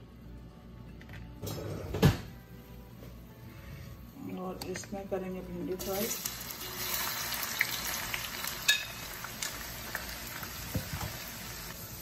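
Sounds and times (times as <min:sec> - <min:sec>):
okra sizzling in hot oil: 0:05.8 - 0:12.0.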